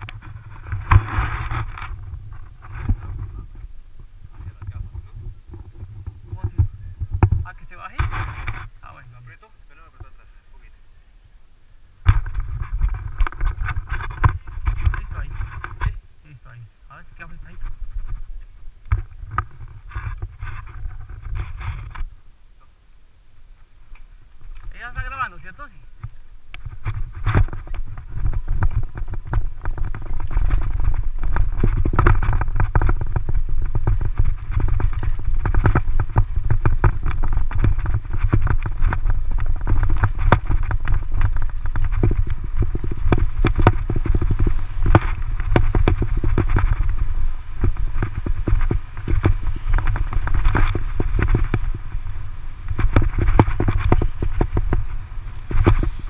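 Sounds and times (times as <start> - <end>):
bike rattling over stones: 0.0 - 10.3, 12.0 - 16.0, 16.9 - 22.2, 24.1 - 56.0
tyres rumbling on dirt road: 0.0 - 10.5, 23.7 - 56.0
wind on microphone: 0.0 - 22.7, 23.4 - 56.0.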